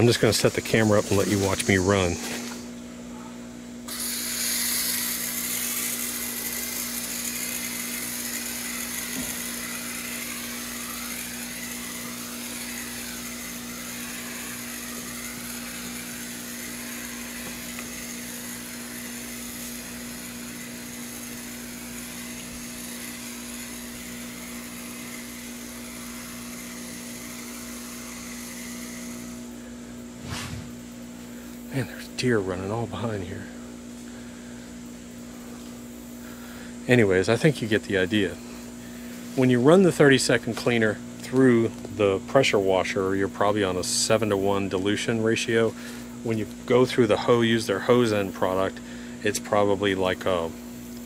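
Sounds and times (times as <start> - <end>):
steady low hum: 0.0 - 51.0
water spraying onto wooden fence: 4.1 - 29.4.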